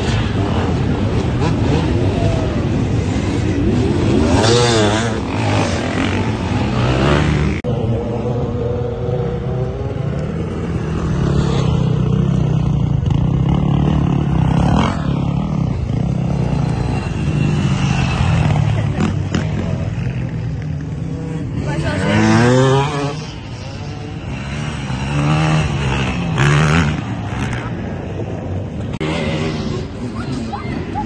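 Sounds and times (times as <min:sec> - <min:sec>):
dirt bike engines revving: 0:00.0 - 0:31.0.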